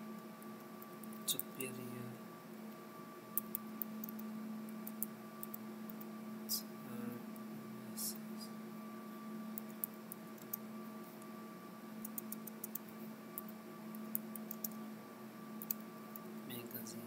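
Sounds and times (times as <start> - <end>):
faint steady hum: 0.0 - 17.0
computer keyboard typing: 3.4 - 4.2, 9.6 - 10.6, 12.0 - 12.8, 14.1 - 14.8, 15.6 - 16.3.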